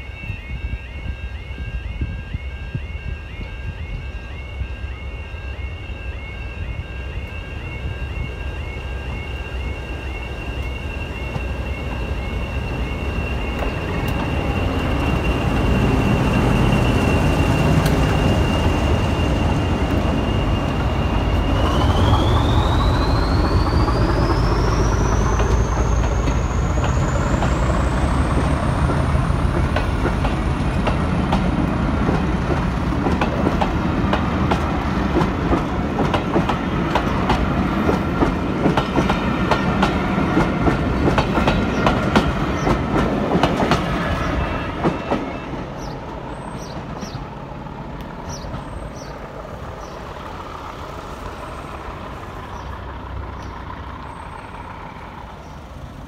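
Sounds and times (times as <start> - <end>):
turbocharger whistle: 0.0 - 28.8
diesel locomotive engine running: 0.0 - 56.0
train wheels clacking over rail joints: 20.7 - 46.0.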